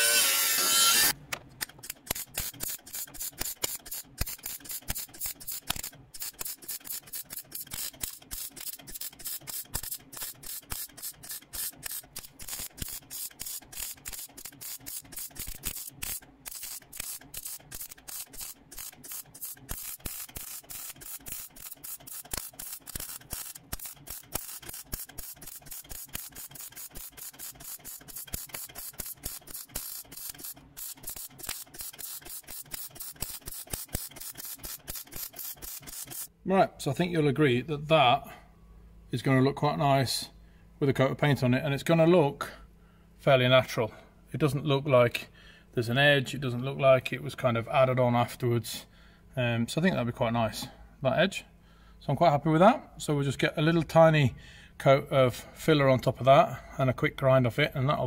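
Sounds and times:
welder arc crackling: 1.8s - 36.3s.

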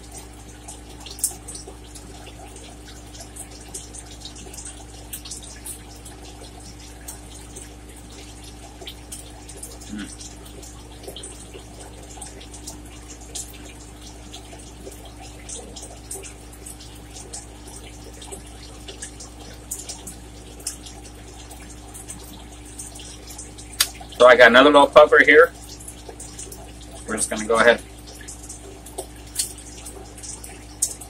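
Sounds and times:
steady low hum: 0.0s - 31.0s
wet clicks: 14.8s - 24.2s, 28.1s - 31.0s.

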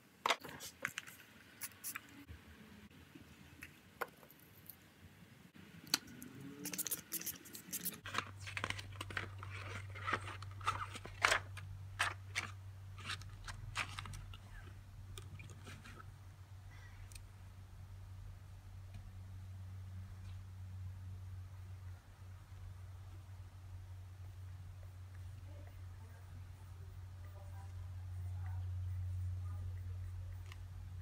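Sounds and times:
pages turning: 0.3s - 2.0s, 6.6s - 14.4s
paper rustling: 6.7s - 14.4s
low hum: 11.4s - 31.0s.

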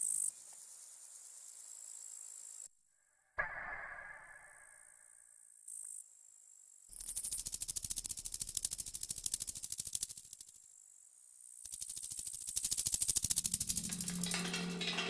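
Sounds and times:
rattling clatter in a metal can: 12.7s - 15.0s.

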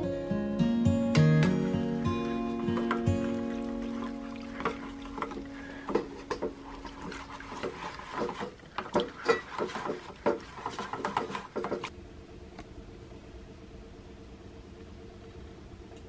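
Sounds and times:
music: 0.0s - 7.0s
scrubbing metal pan in water: 2.3s - 11.9s.

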